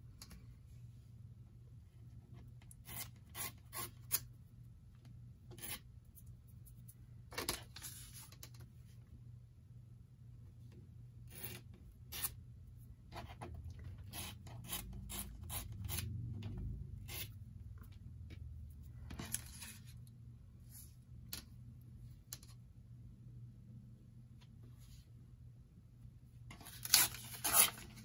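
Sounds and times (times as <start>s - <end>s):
paper being cut along ruler: 14.0s - 16.1s, 26.6s - 28.0s.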